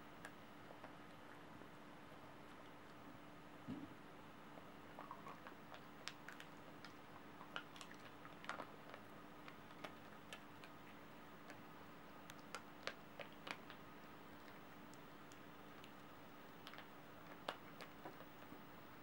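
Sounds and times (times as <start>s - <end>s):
dog chewing jerky: 5.0s - 11.6s.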